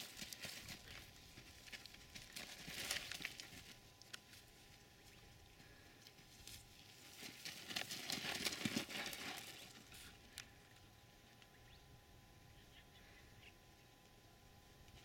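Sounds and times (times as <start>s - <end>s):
hooves on gravelly ground: 0.0s - 10.4s.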